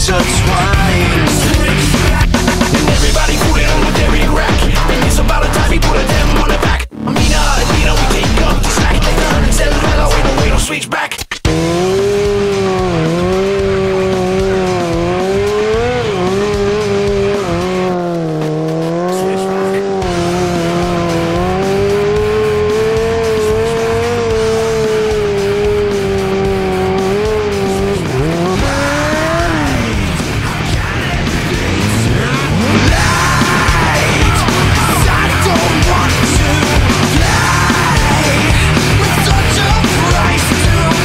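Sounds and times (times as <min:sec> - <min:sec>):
motorcycle engine revving: 0:00.0 - 0:10.8, 0:11.4 - 0:41.0.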